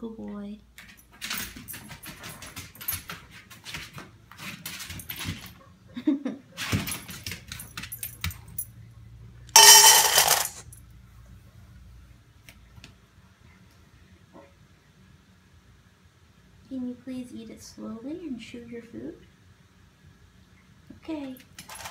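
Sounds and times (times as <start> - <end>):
kibble pouring into steel bowl: 9.6 - 10.6
kibble rattling in metal cup: 9.6 - 10.6, 21.6 - 21.9.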